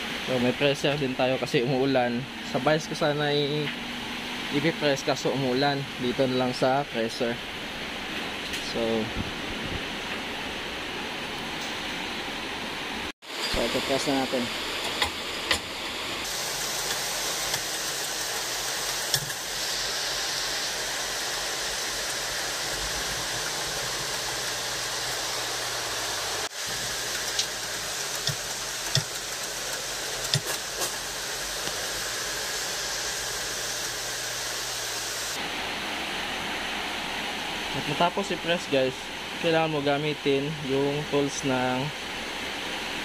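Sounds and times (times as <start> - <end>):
rain: 7.4 - 39.8
press hissing: 13.3 - 35.4.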